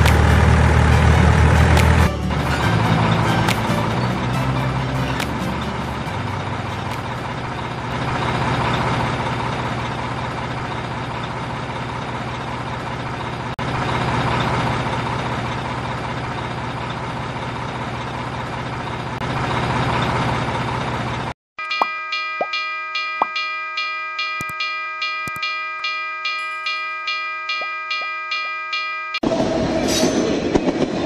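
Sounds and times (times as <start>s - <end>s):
truck engine idling: 0.0s - 21.4s.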